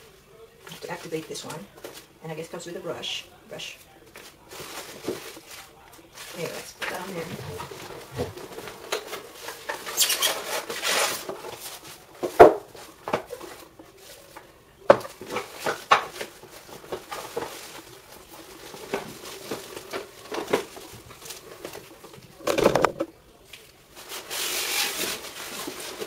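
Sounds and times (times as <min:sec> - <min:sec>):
plastic rustling: 0:00.0 - 0:26.0
cardboard box flaps rustling: 0:07.0 - 0:09.1.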